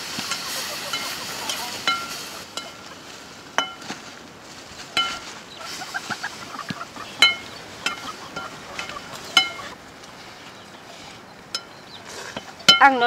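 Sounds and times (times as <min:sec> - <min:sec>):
greens sizzling in wok: 0:00.0 - 0:04.1.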